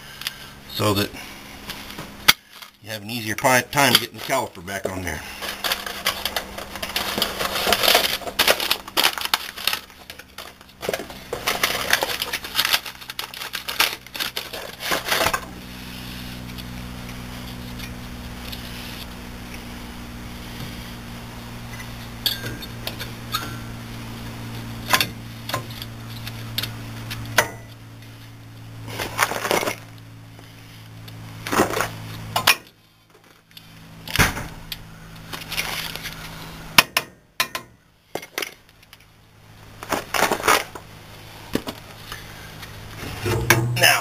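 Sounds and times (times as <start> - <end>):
steady low hum: 0.0 - 44.0
metallic clinks and knocks: 22.2 - 22.7.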